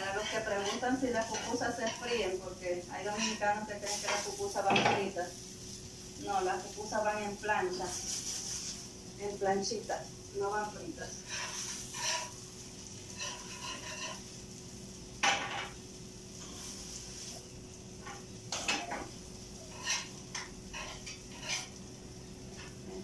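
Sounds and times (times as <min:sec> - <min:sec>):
metal utensils clinking on cookware: 0:00.0 - 0:02.3, 0:13.1 - 0:14.2, 0:18.0 - 0:21.8.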